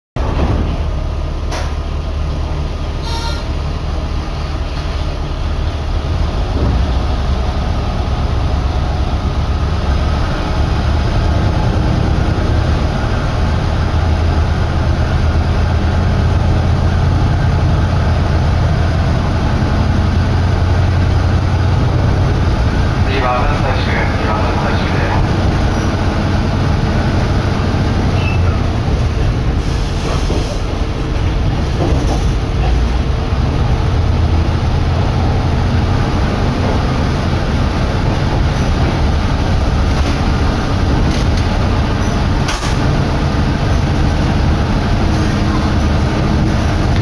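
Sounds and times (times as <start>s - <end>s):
train engine drone: 0.2s - 47.0s
short beep: 3.0s - 3.5s.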